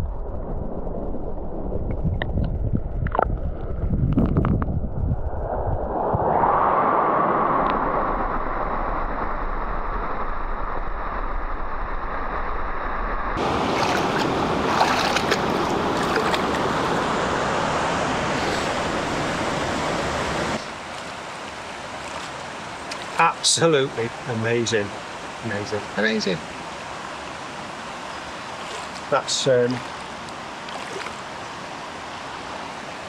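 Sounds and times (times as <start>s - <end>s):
fast-flowing water rushing: 13.4s - 33.0s.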